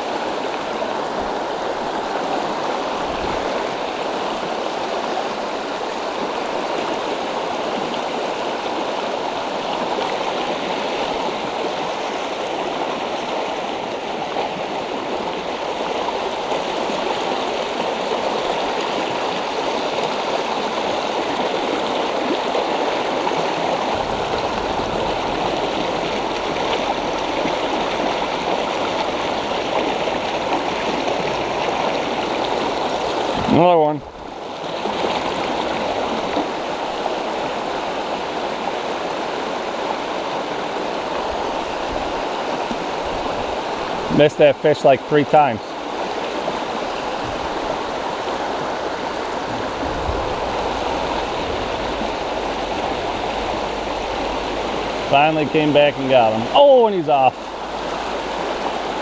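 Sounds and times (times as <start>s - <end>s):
river rushing over rocks: 0.0s - 59.0s
low rumble: 23.8s - 28.3s, 49.3s - 55.0s.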